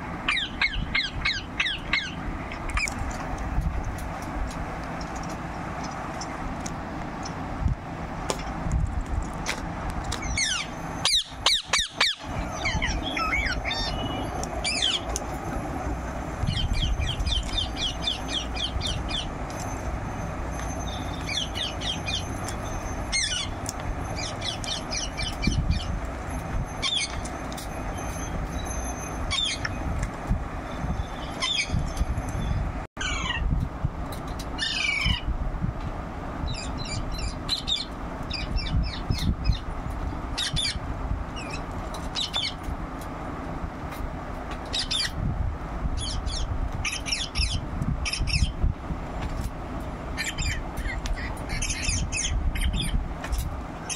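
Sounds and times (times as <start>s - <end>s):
parakeet squawking and chirping: 0.2s - 3.0s, 10.2s - 15.1s, 16.4s - 19.9s, 20.5s - 26.0s, 26.7s - 29.8s, 30.9s - 33.5s, 34.6s - 35.3s, 36.5s - 39.6s, 40.4s - 40.8s, 41.4s - 42.6s, 44.7s - 45.2s, 46.0s - 48.6s, 50.2s - 53.0s.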